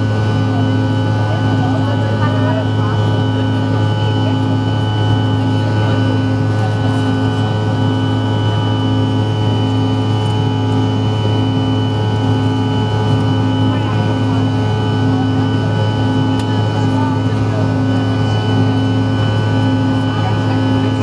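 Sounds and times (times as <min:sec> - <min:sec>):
high steady whine: 0:00.0 - 0:21.0
jet engine low drone: 0:00.0 - 0:21.0.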